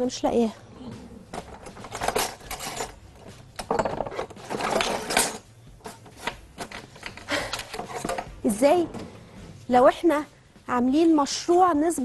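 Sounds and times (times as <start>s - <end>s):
utensils and dishes clattering: 1.3s - 8.3s.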